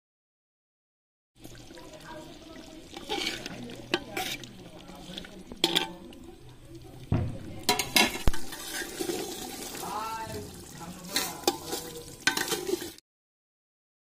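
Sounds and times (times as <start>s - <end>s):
metal ladle scraping pot: 2.8s - 13.0s
ladle clinking against pot: 5.5s - 6.2s, 7.6s - 9.2s, 11.1s - 13.0s.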